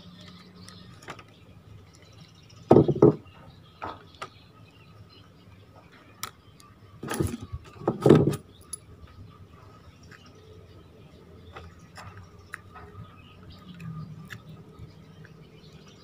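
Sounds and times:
clicking and scraping metal parts: 6.2s - 8.9s.

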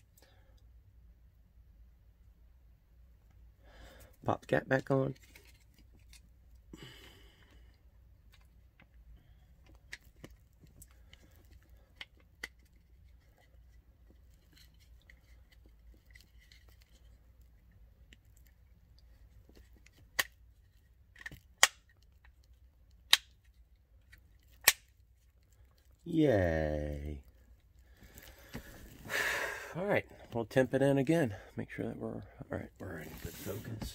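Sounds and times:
small plastic clicks and snaps: 21.1s - 25.5s.

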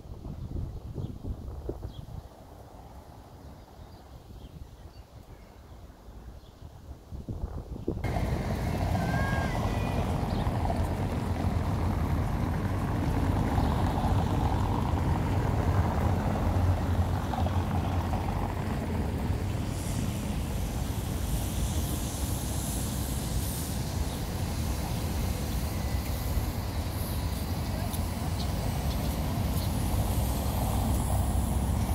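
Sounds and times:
vehicle rumbling: 8.0s - 31.9s.

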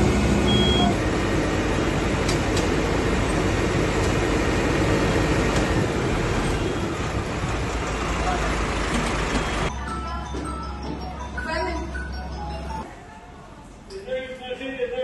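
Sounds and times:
fire truck ladder machinery running: 0.0s - 9.7s.

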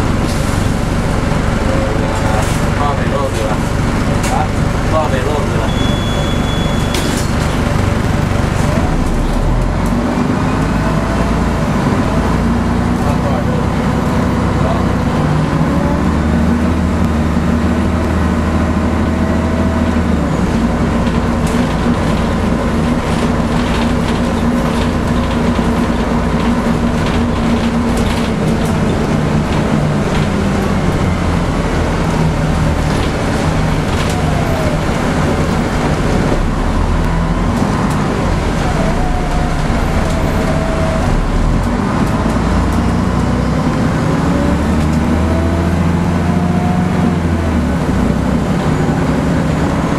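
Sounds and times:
bus diesel engine running: 0.0s - 49.9s
road noise: 0.0s - 49.9s.

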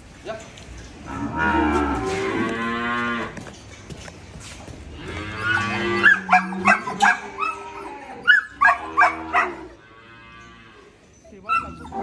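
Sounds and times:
cattle mooing: 1.0s - 3.4s, 4.9s - 10.9s.

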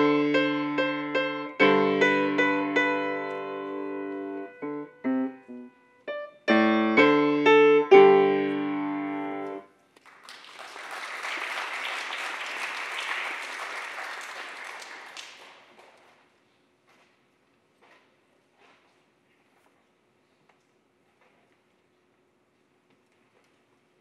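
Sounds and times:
piano chords: 0.0s - 9.7s
audience applauding: 10.0s - 16.0s.

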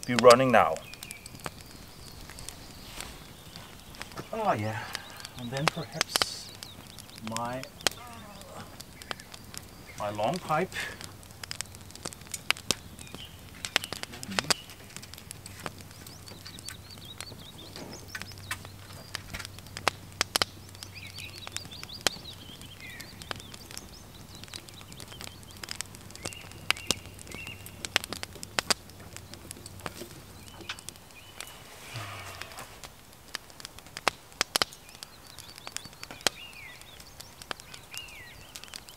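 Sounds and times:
campfire crackling and popping: 0.0s - 38.9s
faint bird calls: 0.7s - 11.9s, 12.6s - 27.8s, 30.2s - 32.9s.

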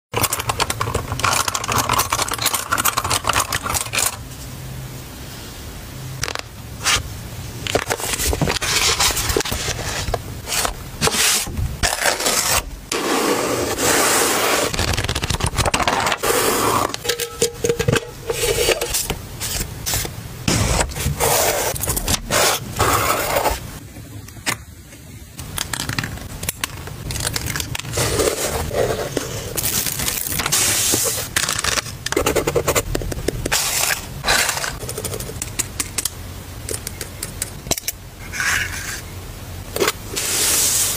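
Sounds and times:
paper rustling: 7.6s - 12.7s, 14.6s - 16.4s, 25.6s - 32.4s.

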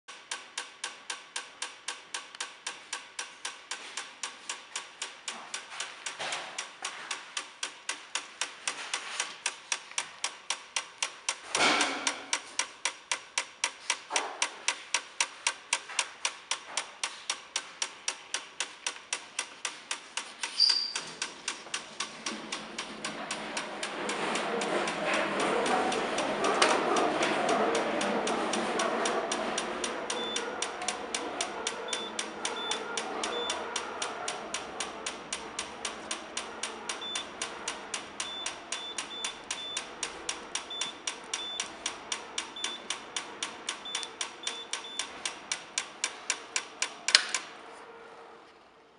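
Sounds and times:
machine clicking: 0.1s - 47.6s
steady rushing noise: 21.2s - 31.8s.

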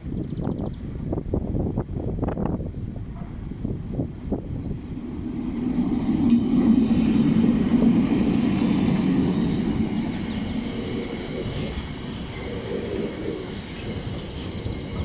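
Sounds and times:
diesel locomotive engine: 1.4s - 15.0s
tank wagons rolling on rails: 5.2s - 15.0s.

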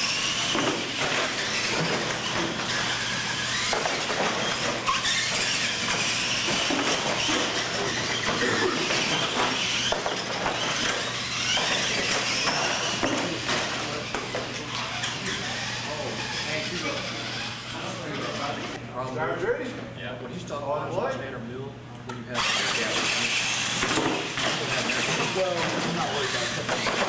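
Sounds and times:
toy truck electric motors whining: 0.0s - 18.8s, 22.4s - 27.0s
toy trucks knocking on ramps: 0.1s - 14.4s, 26.6s - 27.0s.

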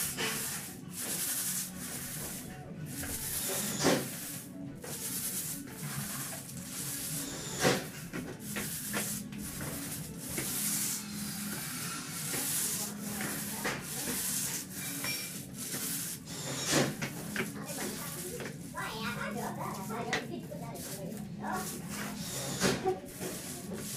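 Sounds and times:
roller swishing over floor: 0.0s - 23.9s.

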